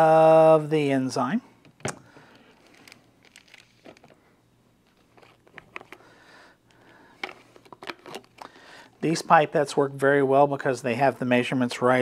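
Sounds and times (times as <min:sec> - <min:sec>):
plastic bag crinkling: 0:02.5 - 0:04.2, 0:04.8 - 0:06.0.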